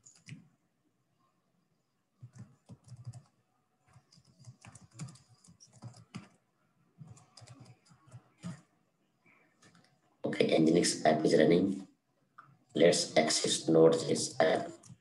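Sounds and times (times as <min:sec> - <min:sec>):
keyboard typing: 0:00.0 - 0:00.5, 0:02.2 - 0:06.4, 0:07.0 - 0:08.7, 0:09.6 - 0:10.0, 0:14.4 - 0:15.0.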